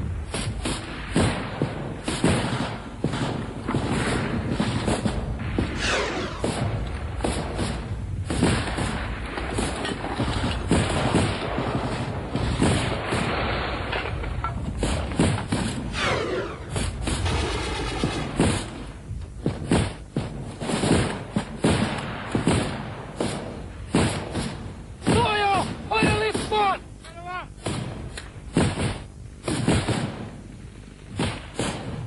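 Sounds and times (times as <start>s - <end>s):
rifle gunfire: 0.0s - 26.8s, 27.6s - 32.0s
falling whine: 13.2s - 19.5s.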